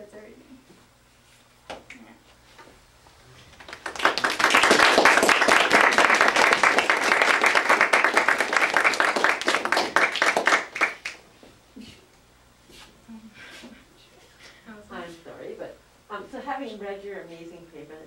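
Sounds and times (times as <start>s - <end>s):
audience applauding: 3.5s - 11.2s.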